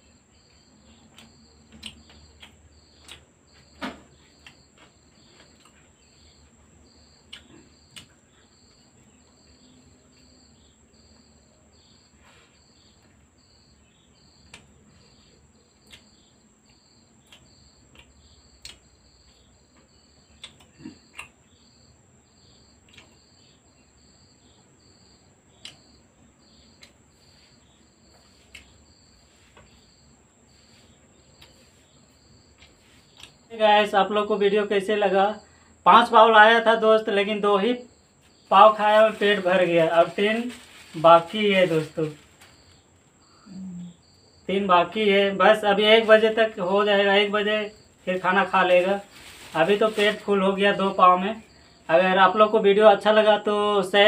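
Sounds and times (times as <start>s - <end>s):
cricket chirping: 0.0s - 54.0s
small clicks and taps of eating: 1.0s - 3.7s, 4.3s - 5.8s, 7.2s - 8.2s, 14.4s - 14.7s, 15.8s - 21.4s, 22.8s - 23.3s, 25.5s - 25.9s, 26.8s - 27.0s, 28.1s - 28.8s, 32.6s - 33.4s.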